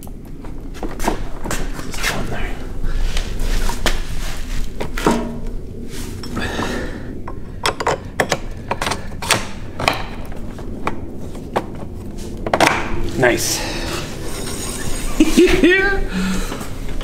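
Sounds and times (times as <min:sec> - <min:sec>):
metal clicks and knocks: 0:07.2 - 0:11.8.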